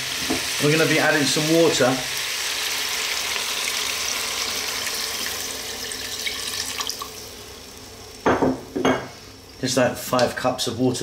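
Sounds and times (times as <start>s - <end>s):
water pouring into saucepan: 2.9s - 7.3s.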